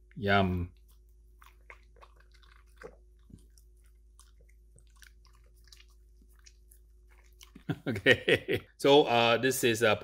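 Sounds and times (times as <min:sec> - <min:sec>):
dog chewing: 0:00.7 - 0:07.9.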